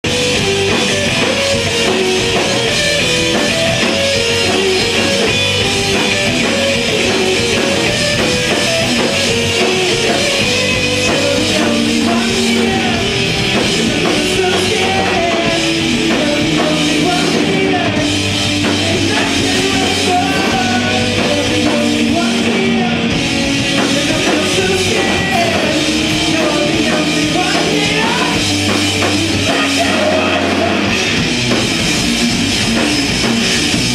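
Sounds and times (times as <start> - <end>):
rock band playing live: 0.0 - 33.9.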